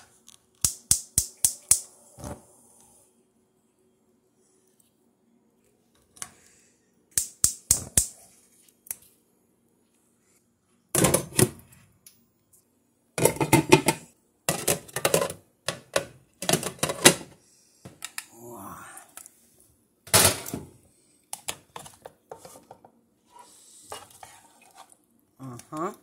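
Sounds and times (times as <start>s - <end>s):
cookware clinking and clattering: 13.2s - 17.3s
cookware rattling: 13.2s - 17.3s.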